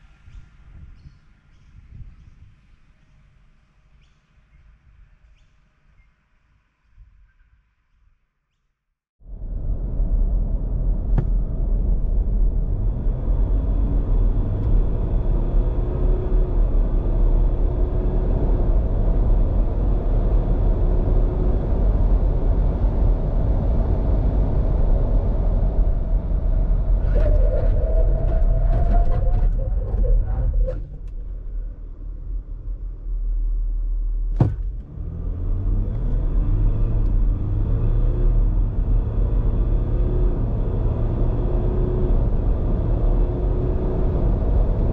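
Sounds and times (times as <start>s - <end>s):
road noise: 9.2s - 44.9s
diesel engine accelerating: 9.3s - 44.9s
sharp knock: 34.4s - 34.7s.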